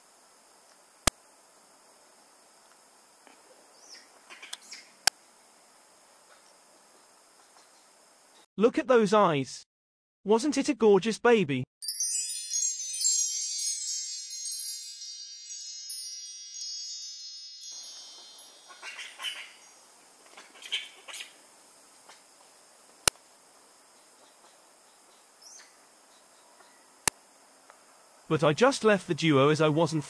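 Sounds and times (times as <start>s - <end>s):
wind chimes tinkling: 11.8s - 19.9s.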